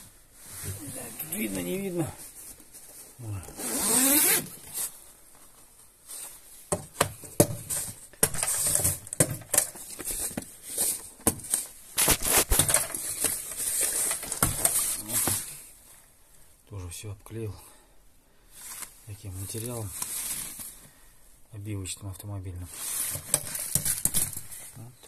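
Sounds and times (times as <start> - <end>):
fabric rustling: 0.0 - 6.7.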